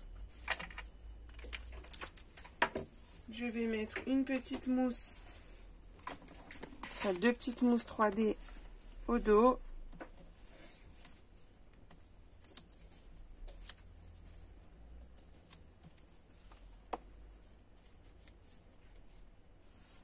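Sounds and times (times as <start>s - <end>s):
paper rustling and ticking: 0.2s - 2.9s, 5.9s - 19.2s.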